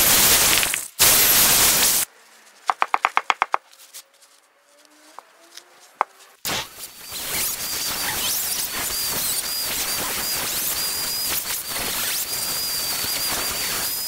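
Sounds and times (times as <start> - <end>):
electric drill grinding wood: 6.5 - 14.0.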